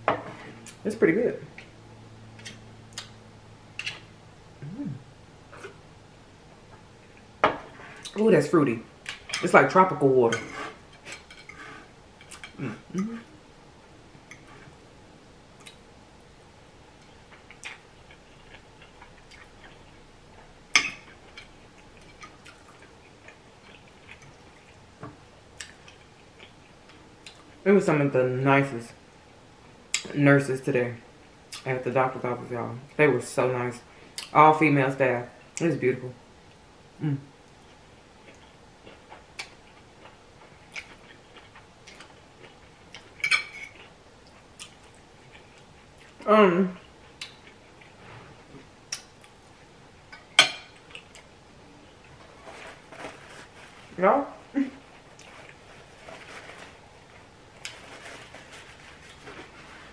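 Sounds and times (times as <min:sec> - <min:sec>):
person chewing: 0:11.0 - 0:13.3, 0:17.0 - 0:24.8, 0:25.6 - 0:27.6, 0:37.0 - 0:49.4, 0:50.7 - 0:53.8, 0:54.8 - 0:59.9.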